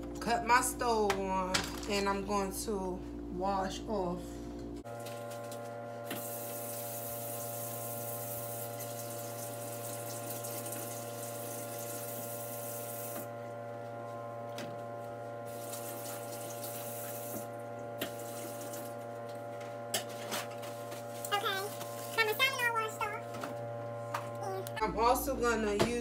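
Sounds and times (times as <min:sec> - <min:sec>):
faucet running into sink: 0:06.2 - 0:13.2, 0:15.5 - 0:19.0.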